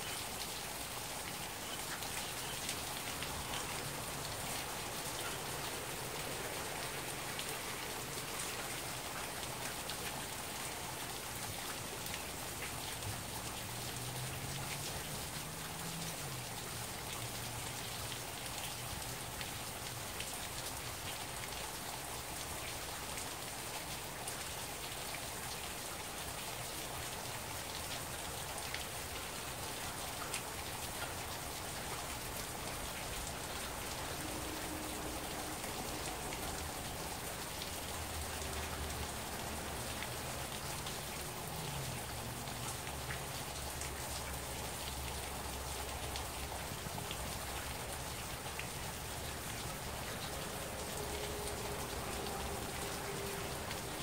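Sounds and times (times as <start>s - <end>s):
heavy rain falling: 0.0s - 54.0s
raindrops ticking near microphone: 0.0s - 54.0s.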